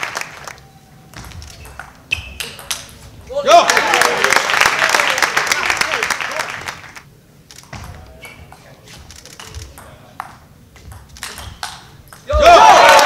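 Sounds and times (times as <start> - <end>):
crowd noise: 11.4 - 13.0.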